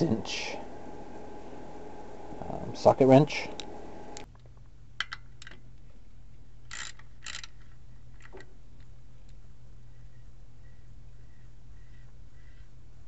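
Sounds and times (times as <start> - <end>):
socket ratchet ratcheting: 6.7 - 7.6.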